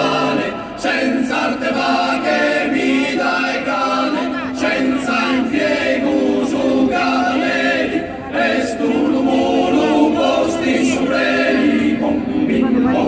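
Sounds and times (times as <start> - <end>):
mixed choir singing a cappella: 0.0 - 13.0.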